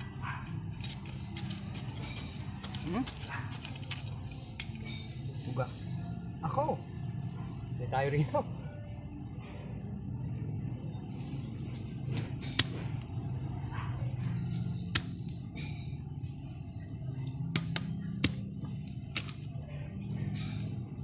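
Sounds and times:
hand tool striking earth: 0.0s - 5.1s, 12.2s - 13.0s, 14.5s - 15.4s, 17.5s - 19.5s
steady low hum: 0.0s - 21.0s.

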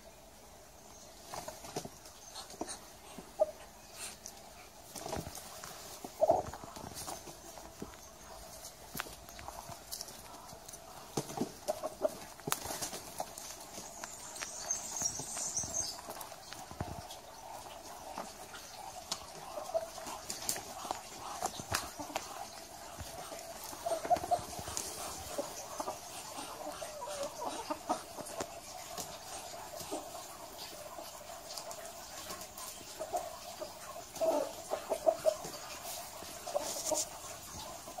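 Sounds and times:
ducks clucking: 1.1s - 38.0s
small clicks and rustles: 4.2s - 17.1s.

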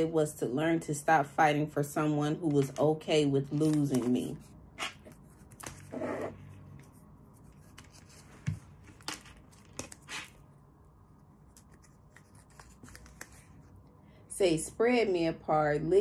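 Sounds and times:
cards rustling: 2.5s - 10.4s, 11.4s - 13.8s.

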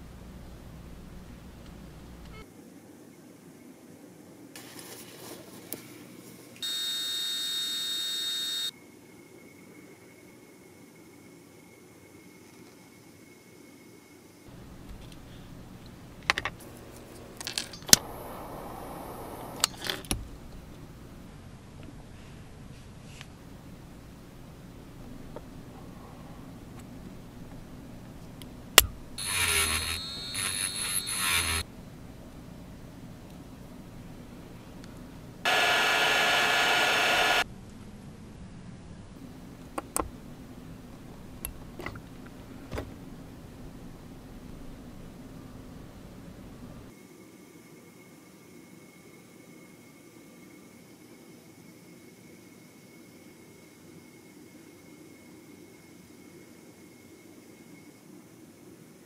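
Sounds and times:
rotary tool motor whining: 29.2s - 31.6s, 35.5s - 37.4s.

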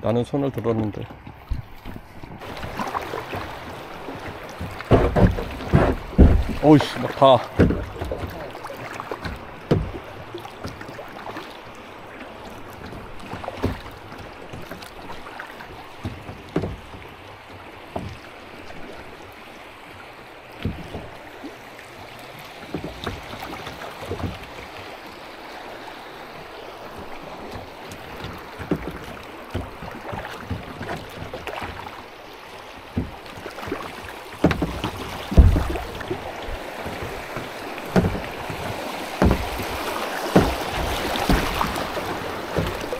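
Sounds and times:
paddle strokes splashing: 0.0s - 42.9s
rushing water: 0.0s - 42.9s
wind: 0.0s - 42.9s
sharp knocks: 4.1s - 8.5s, 9.2s - 10.0s, 16.0s - 17.0s, 20.6s - 21.1s, 34.4s - 41.8s.

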